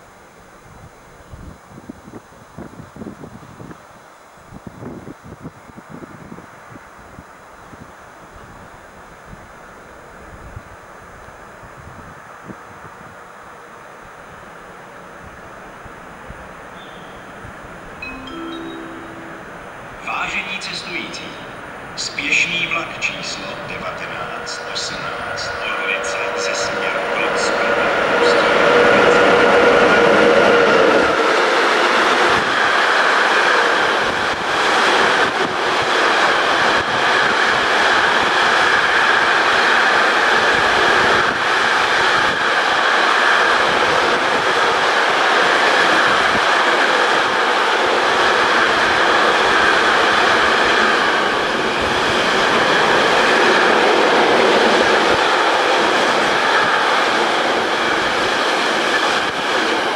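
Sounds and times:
freight train rumbling past: 0:13.5 - 0:59.9.

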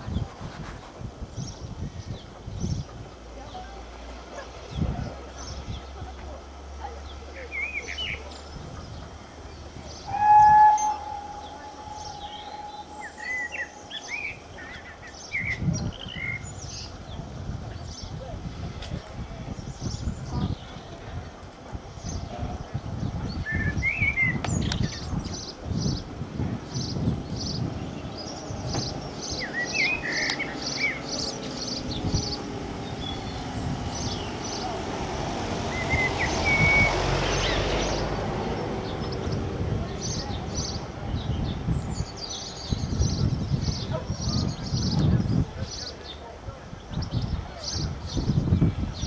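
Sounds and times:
birds chirping: 0:00.0 - 0:18.3, 0:19.2 - 0:49.0
steam locomotive whistle: 0:10.0 - 0:14.2.

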